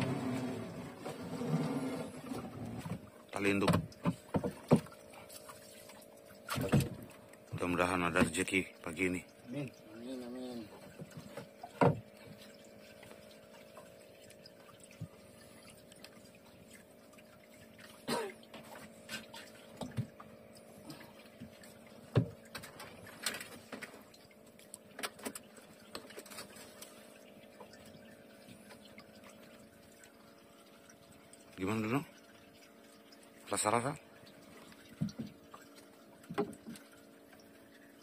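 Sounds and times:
line and gear knocking on hull: 8.1s - 8.5s, 34.9s - 35.6s.

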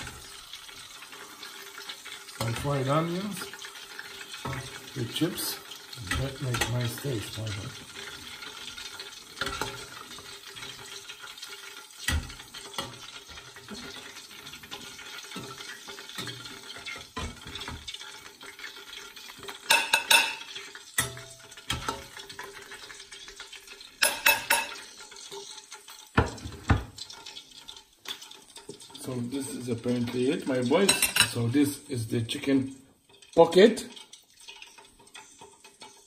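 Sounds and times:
utensils scraping in a pan: 0.0s - 31.5s, 33.0s - 36.0s
utensils clinking against dishes: 19.6s - 22.4s, 24.0s - 24.9s, 30.1s - 31.5s.

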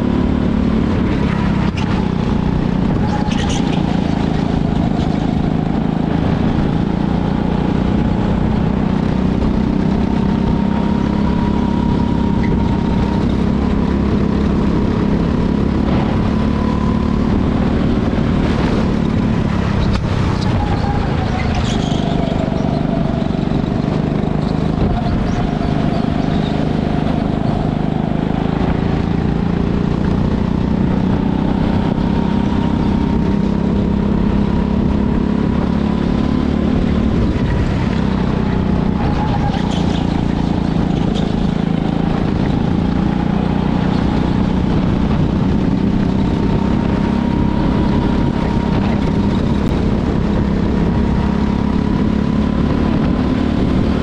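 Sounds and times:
go-kart engine running: 0.0s - 54.0s.

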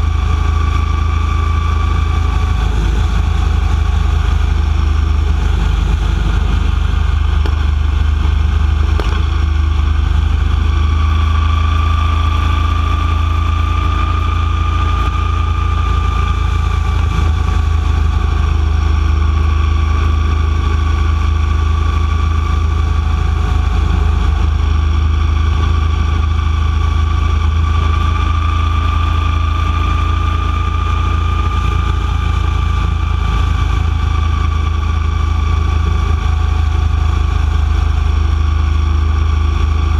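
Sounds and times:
high whine: 0.0s - 39.9s
motorcycle engine rumble: 0.0s - 39.9s.

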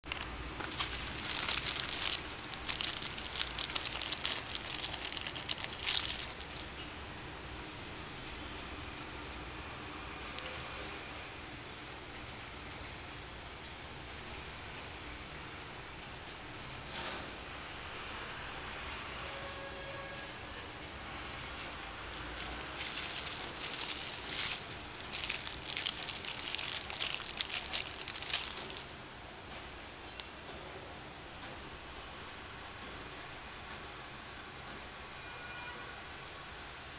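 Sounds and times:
plastic film crackling: 0.0s - 6.8s, 21.5s - 28.9s
plastic packaging crinkling: 0.0s - 6.8s, 21.6s - 28.9s.

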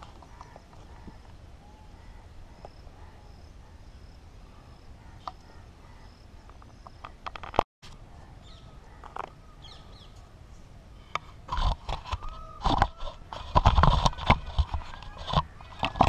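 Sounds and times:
soft bird calls: 0.0s - 7.3s, 8.0s - 11.4s.

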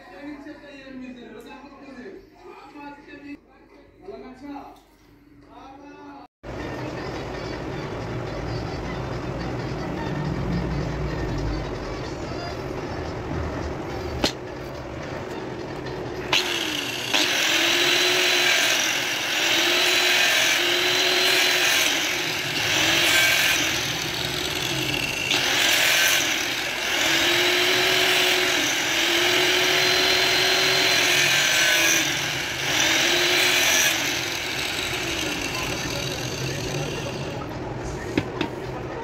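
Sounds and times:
angle grinder grinding: 16.3s - 37.6s.

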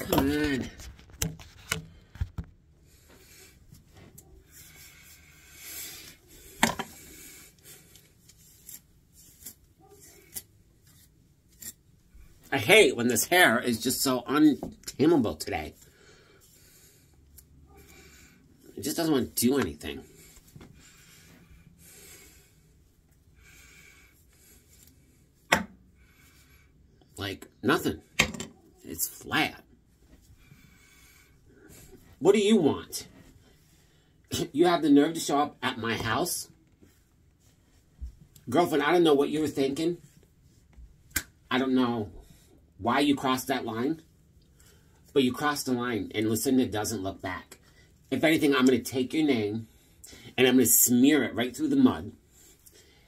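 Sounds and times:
scratchy rustling of wig hair: 3.0s - 23.2s.

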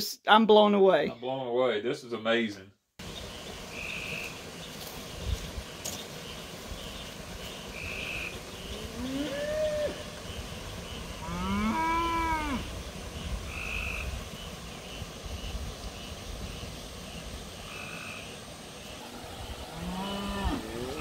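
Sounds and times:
cattle mooing: 8.9s - 10.0s, 11.2s - 12.7s, 19.0s - 21.0s.

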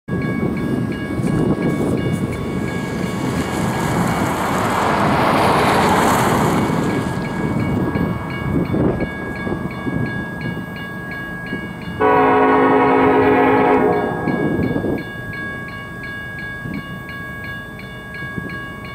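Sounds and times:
crossing bell ringing: 0.1s - 18.9s
freight train rumble: 0.1s - 18.9s
locomotive air horn blast: 12.0s - 14.6s.

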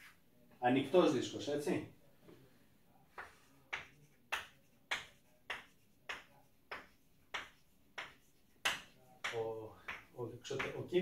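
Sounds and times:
chalk striking a blackboard: 3.1s - 11.0s.

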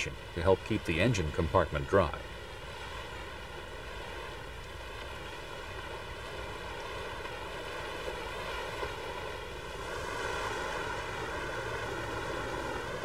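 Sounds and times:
water swishing around wheels: 0.0s - 13.0s
wavering hum: 9.6s - 13.0s.

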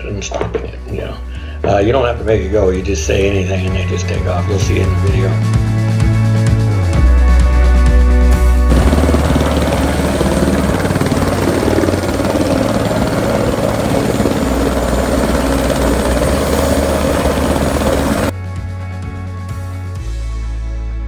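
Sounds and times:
music: 0.0s - 21.0s
helicopter rotor and engine: 8.6s - 18.3s.

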